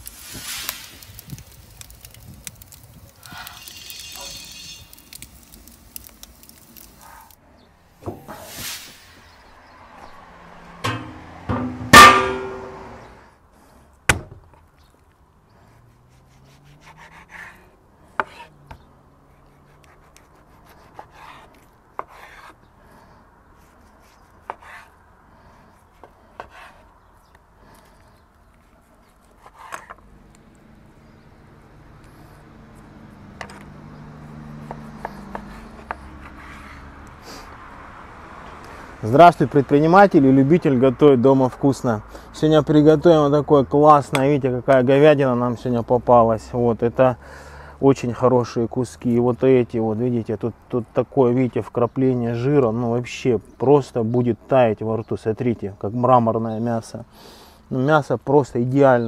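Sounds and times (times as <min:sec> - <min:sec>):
metal lid clanking down: 0:10.8 - 0:13.1
knife slicing raw meat: 0:15.9 - 0:18.5.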